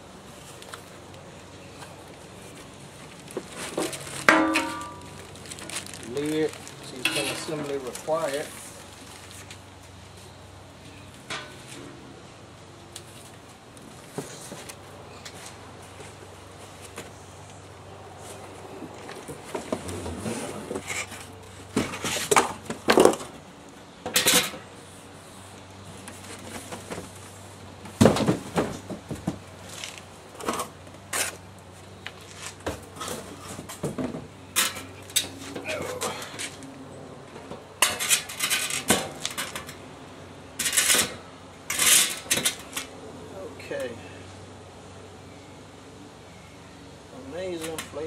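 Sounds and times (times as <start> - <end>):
plastic and cardboard rustling: 1.8 - 10.2
metallic clanks and knocks: 3.7 - 5.2.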